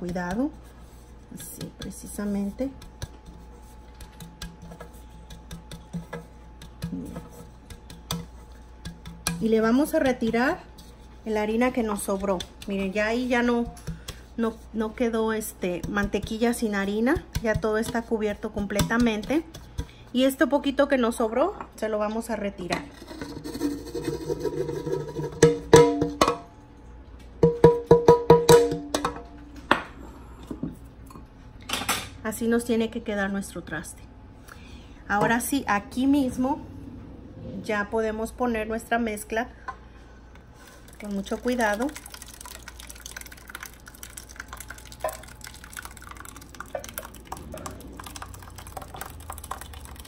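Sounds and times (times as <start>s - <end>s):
batter plopping and dripping: 11.8s - 20.0s, 40.7s - 50.0s
pan scraping: 22.7s - 26.4s
metal cake pan knocking on counter: 25.2s - 26.4s, 27.4s - 29.2s.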